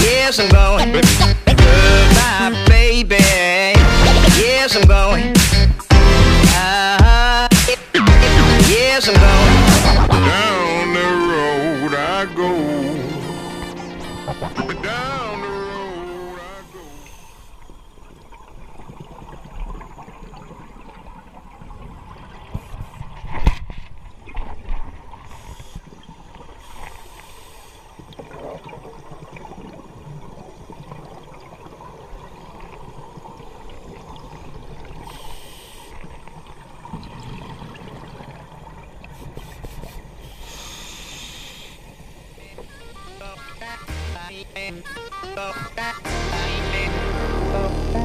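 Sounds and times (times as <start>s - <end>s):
hissing bubbles: 25.2s - 46.1s
underwater regulator breathing: 35.0s - 36.2s, 39.1s - 43.8s.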